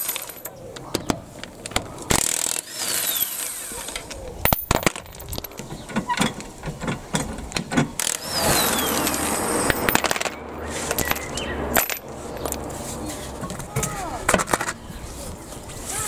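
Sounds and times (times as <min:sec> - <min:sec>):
cordless drill running: 0:02.2 - 0:04.0, 0:08.0 - 0:09.6.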